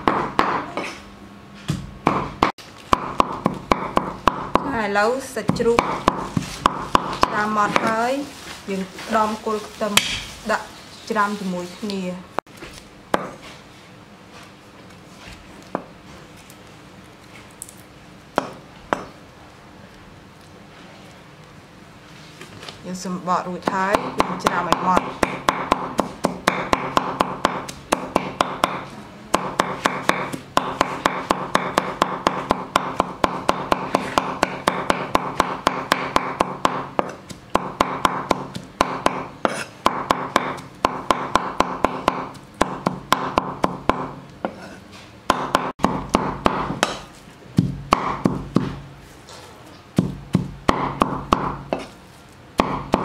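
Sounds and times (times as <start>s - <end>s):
cleaver chopping on wooden board: 1.7s - 4.7s, 5.5s - 8.0s, 13.1s - 13.4s, 18.4s - 19.1s, 23.7s - 44.6s, 45.3s - 48.8s, 50.0s - 51.9s, 52.6s - 53.0s.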